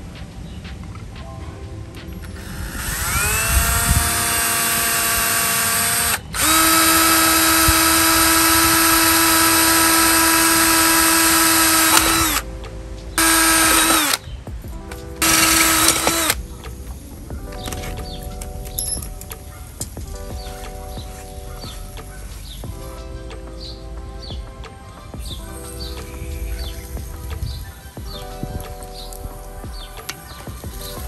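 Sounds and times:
power tool motor whining: 2.4s - 12.4s, 13.2s - 14.2s, 15.2s - 16.4s.

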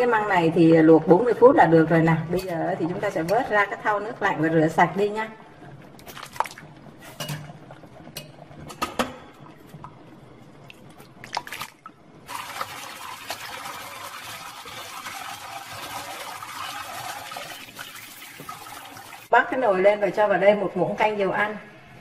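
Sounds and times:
splashes and clicks: 6.0s - 6.7s, 10.6s - 12.0s
rinsing by hand: 10.6s - 19.3s
tap water pouring into basin: 10.7s - 19.3s.

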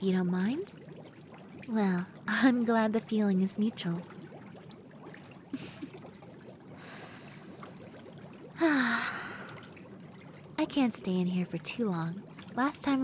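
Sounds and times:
water trickling: 0.0s - 13.0s
woman breathing in: 6.8s - 7.6s
woman sighing: 8.6s - 9.6s.

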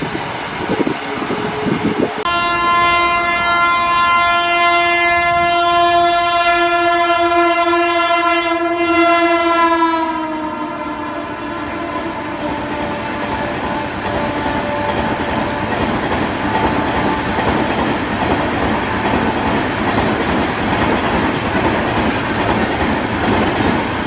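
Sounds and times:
train rumbling: 0.0s - 24.0s
locomotive horn blast: 1.5s - 17.4s
train coaches clattering: 11.2s - 24.0s.

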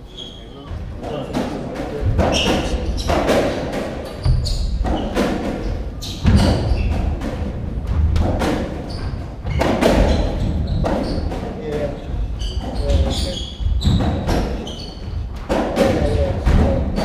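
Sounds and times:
shoes squeaking on wooden floor: 0.0s - 7.2s, 8.6s - 16.2s
footsteps thudding: 1.9s - 15.6s.

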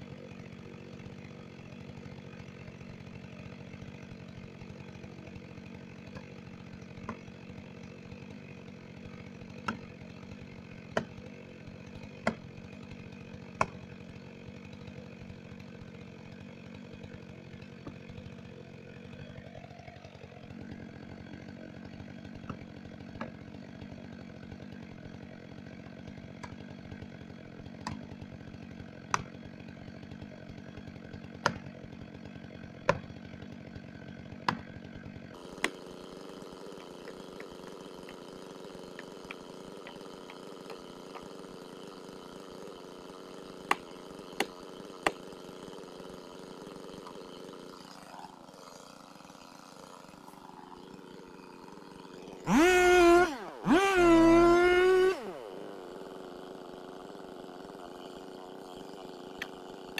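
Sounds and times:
chainsaw idling: 0.0s - 59.9s
axe striking tree: 0.1s - 18.3s, 19.0s - 45.5s.

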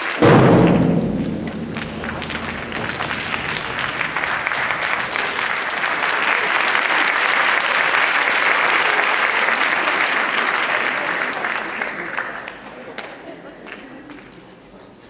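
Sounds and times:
audience applauding: 0.0s - 0.2s, 2.8s - 14.3s.

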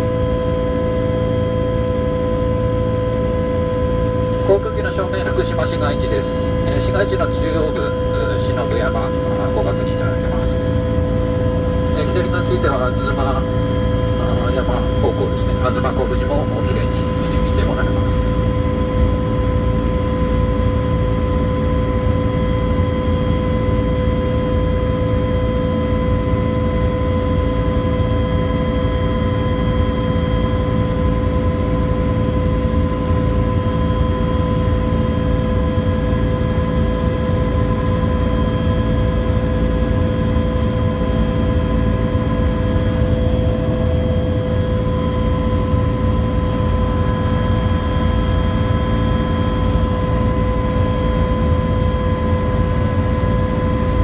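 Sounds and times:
helicopter rotor and engine rumble: 0.0s - 54.0s
steady whine: 0.0s - 54.0s.

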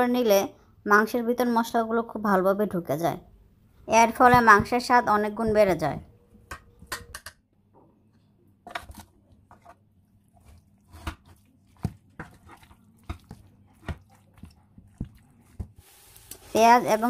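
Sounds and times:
metal spoon stirring wet meat: 8.7s - 17.0s.

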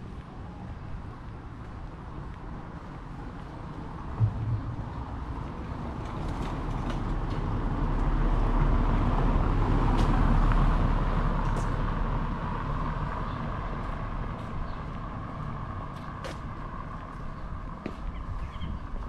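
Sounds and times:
short knock: 4.2s - 5.5s.

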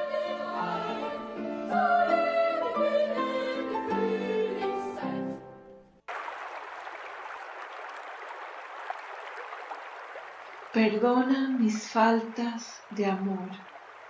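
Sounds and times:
classical music with singing: 0.0s - 5.8s.

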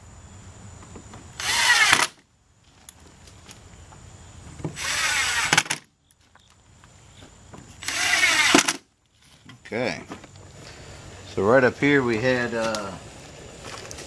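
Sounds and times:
cordless drill driving screws: 1.4s - 2.2s, 4.8s - 5.8s, 7.8s - 8.8s.

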